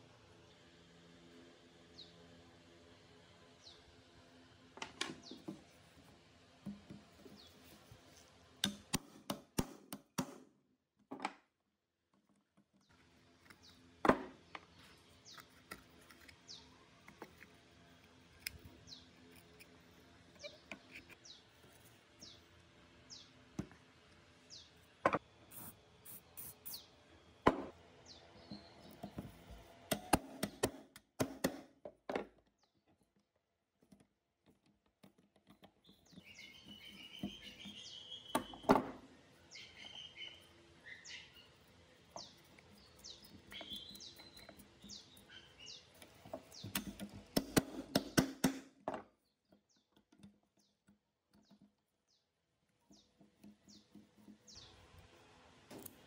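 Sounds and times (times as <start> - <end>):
birds chirping: 20.2 - 23.4, 28.0 - 30.6, 35.5 - 47.6, 52.9 - 54.9
hand tools clicking and tapping: 29.9 - 31.9, 33.8 - 38.5, 42.0 - 48.9.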